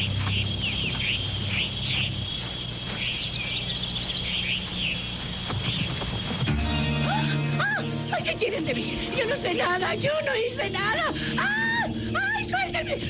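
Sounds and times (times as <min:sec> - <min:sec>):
birds chirping: 0:00.0 - 0:13.0
music: 0:06.4 - 0:13.0.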